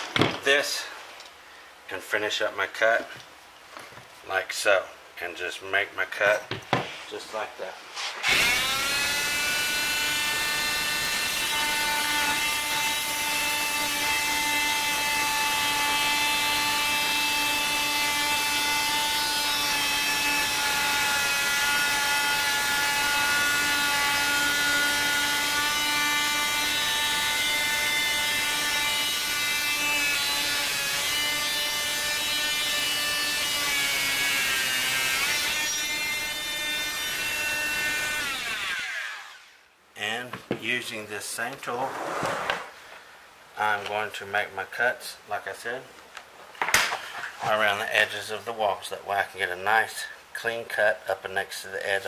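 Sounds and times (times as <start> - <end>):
oscillating multi-tool buzzing whine: 8.2 - 39.6.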